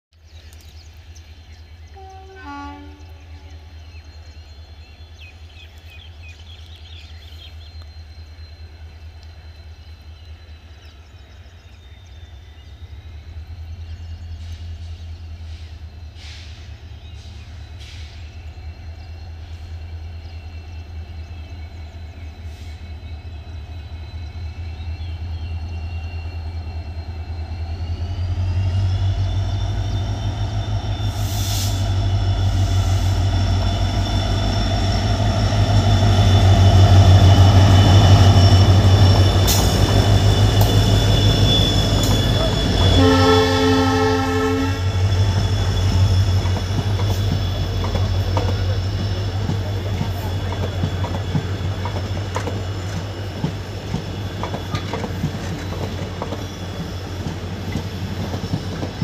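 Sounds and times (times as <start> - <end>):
locomotive engine rumble and whine: 0.2 - 59.0
train horn toot: 1.9 - 3.8, 35.0 - 49.1.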